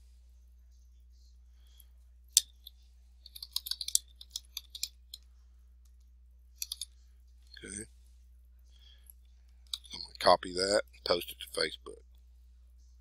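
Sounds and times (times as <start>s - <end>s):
keyboard typing: 2.4s - 5.2s, 6.6s - 6.9s.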